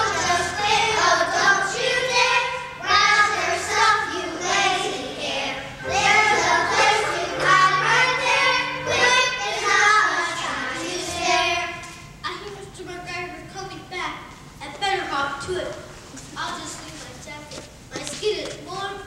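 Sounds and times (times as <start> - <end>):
instrumental accompaniment low notes: 0.0 - 11.8
young children singing: 0.0 - 12.0.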